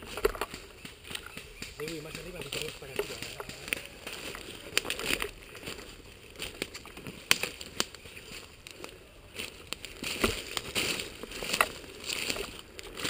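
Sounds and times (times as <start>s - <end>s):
rustling of leaves and twigs: 0.0s - 13.0s
sharp clicks: 0.1s - 5.3s.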